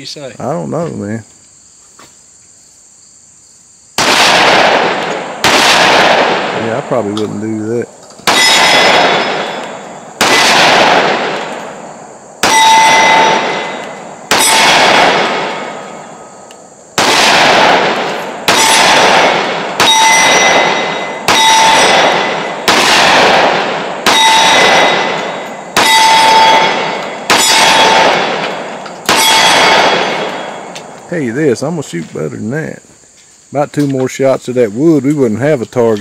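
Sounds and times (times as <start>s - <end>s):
pistol shots with echo: 4.0s - 31.0s
steel target ringing: 8.2s - 10.6s, 12.4s - 16.4s, 18.2s - 30.8s.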